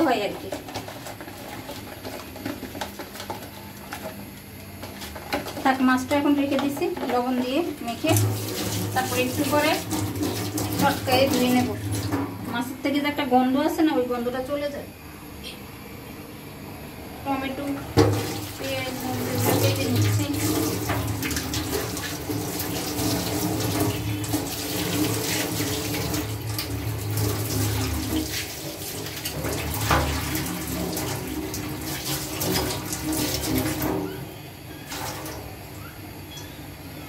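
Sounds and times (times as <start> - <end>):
tap running into metal sink: 18.0 - 34.1.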